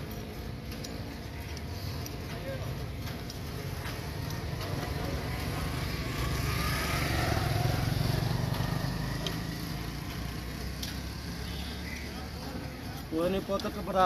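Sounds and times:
vehicle engine passing by: 0:03.6 - 0:12.7.

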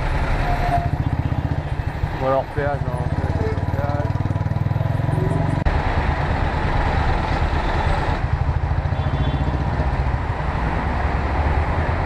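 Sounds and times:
motorcycle engine running low speed: 0:00.0 - 0:05.7, 0:07.2 - 0:10.9
truck engines: 0:00.0 - 0:12.0.

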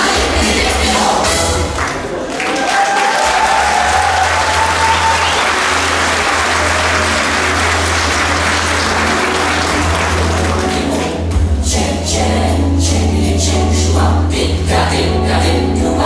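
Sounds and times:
audience applauding: 0:01.6 - 0:11.3.

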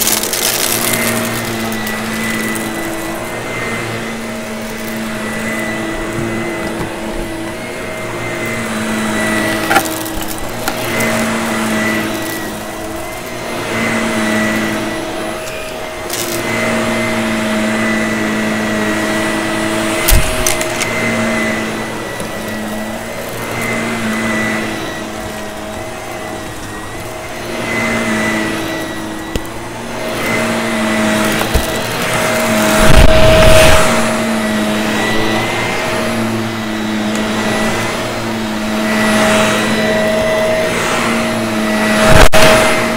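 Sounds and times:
debris clicking in vacuum: 0:00.0 - 0:03.2, 0:09.5 - 0:13.3, 0:20.0 - 0:21.0
vacuum cleaner running: 0:00.0 - 0:42.9.

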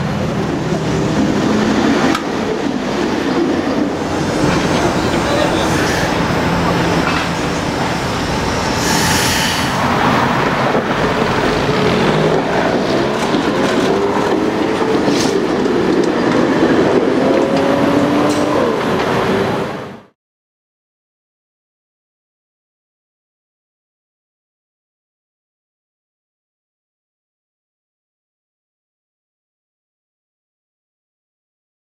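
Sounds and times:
streetcar rumbling on rails: 0:00.0 - 0:20.2.

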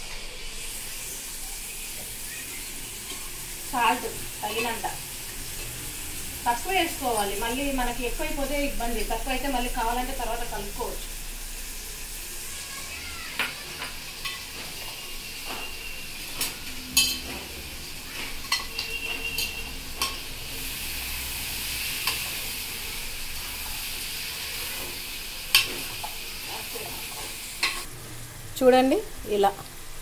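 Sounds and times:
chicken sizzling in pan: 0:00.0 - 0:30.0
spoon scraping pan: 0:18.1 - 0:20.2.

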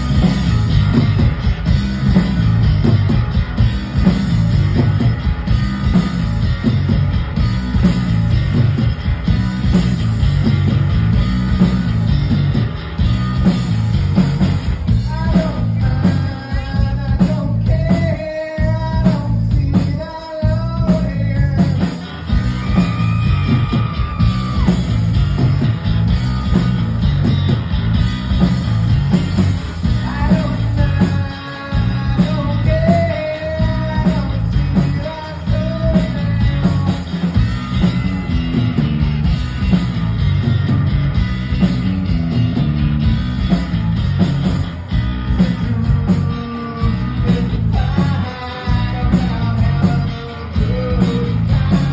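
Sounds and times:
bass: 0:00.0 - 0:51.9
drums: 0:00.0 - 0:51.9
electric guitars: 0:00.0 - 0:51.9
man singing: 0:15.0 - 0:22.0, 0:29.9 - 0:37.3, 0:45.3 - 0:51.9.

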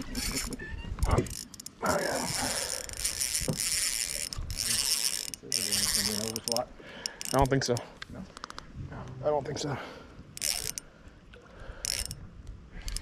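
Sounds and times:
fishing reel whirring and clicking: 0:00.0 - 0:07.8, 0:10.4 - 0:10.9, 0:11.8 - 0:12.2, 0:12.8 - 0:13.0.

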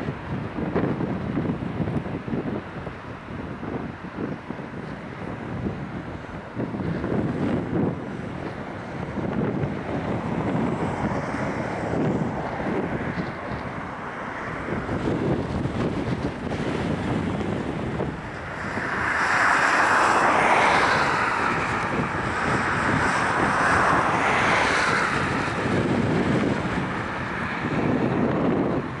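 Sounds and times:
jet airliner taking off: 0:00.0 - 0:29.0
wind buffeting microphone: 0:00.0 - 0:29.0.

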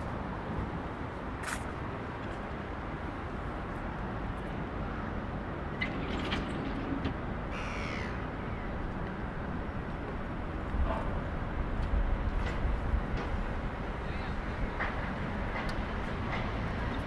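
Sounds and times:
street traffic noise: 0:00.0 - 0:17.0.

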